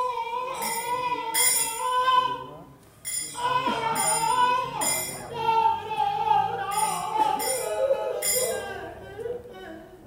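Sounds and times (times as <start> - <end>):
person singing devotional song: 0.0 - 2.5, 3.3 - 10.0
hand cymbals clashing: 0.5 - 2.1, 3.0 - 5.4, 6.6 - 8.8.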